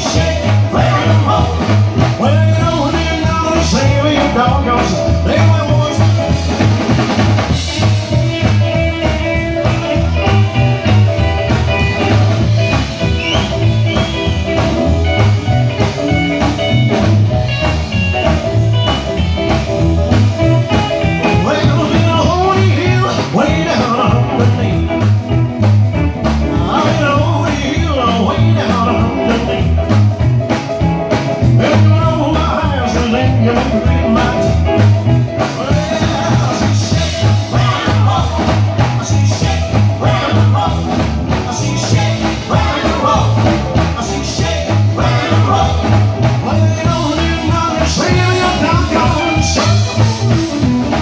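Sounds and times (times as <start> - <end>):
man singing: 0.0 - 6.6, 20.3 - 25.4, 26.2 - 30.0, 31.3 - 51.0
live rock band: 0.0 - 51.0
pulsing bass: 0.0 - 51.0.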